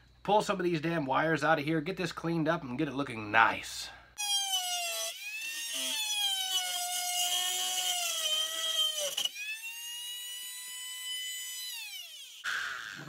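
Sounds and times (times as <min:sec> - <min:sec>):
rotary tool motor whine: 0:04.4 - 0:13.0.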